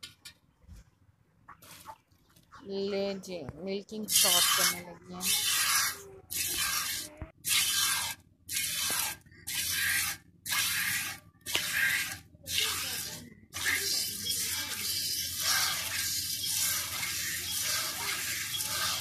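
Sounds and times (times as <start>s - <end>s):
milk squirting into metal pot: 13.6s - 19.0s.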